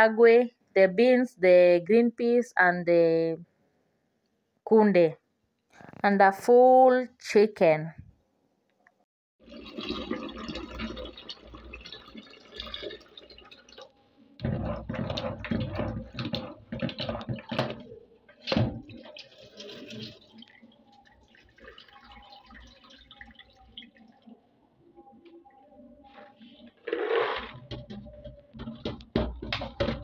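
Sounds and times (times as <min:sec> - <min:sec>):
water running into bowl: 0:09.4 - 0:24.3
water splashing in plastic bowl: 0:09.4 - 0:24.4.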